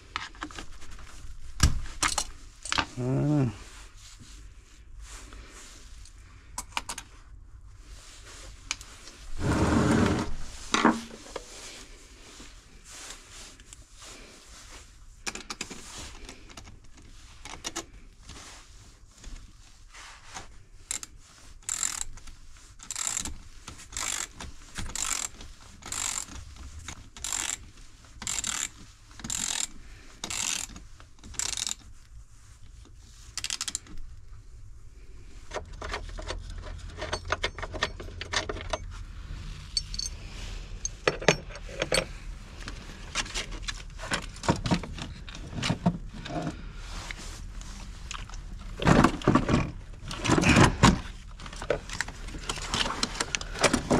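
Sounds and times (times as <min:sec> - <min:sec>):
hand ratchet clicking: 0:20.9 - 0:22.1, 0:22.8 - 0:23.3, 0:23.9 - 0:26.4, 0:27.2 - 0:27.6, 0:28.2 - 0:31.8, 0:33.4 - 0:33.9
parts being handled: 0:20.9 - 0:32.0, 0:32.6 - 0:34.3, 0:35.2 - 0:53.9.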